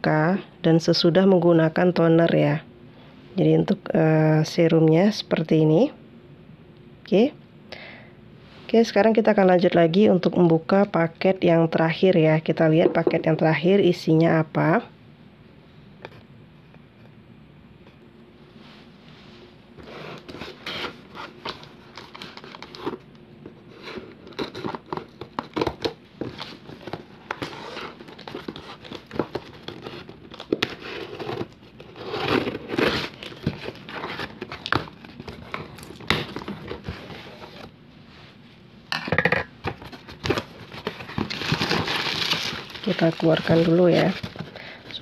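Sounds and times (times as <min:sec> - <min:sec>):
cardboard crinkling: 0:19.8 - 0:37.7, 0:39.6 - 0:45.0
packing tape tearing: 0:40.2 - 0:44.5.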